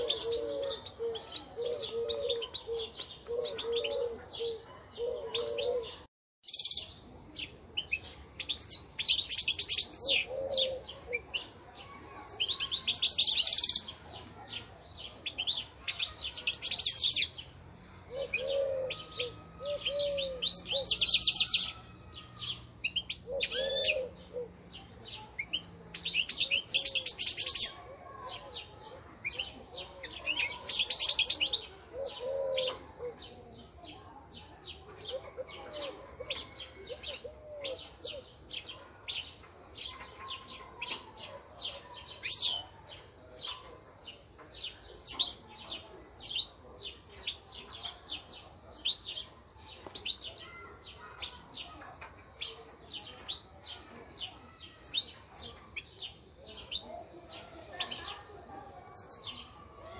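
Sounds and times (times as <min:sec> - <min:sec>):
low cooing: 0:00.0 - 0:06.1, 0:10.0 - 0:11.2, 0:17.9 - 0:21.0, 0:23.3 - 0:24.6, 0:31.4 - 0:33.6, 0:35.1 - 0:38.3.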